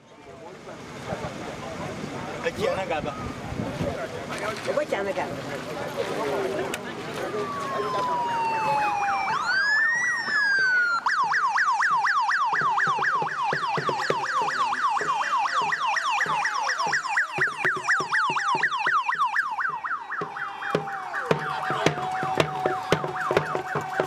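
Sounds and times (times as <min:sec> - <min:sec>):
vehicle siren wailing and yelping: 0:07.2 - 0:24.0.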